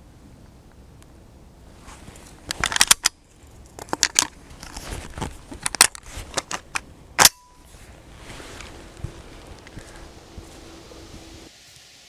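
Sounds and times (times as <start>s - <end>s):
shotgun shells loading clicks: 2.5s - 4.8s, 5.6s - 7.4s.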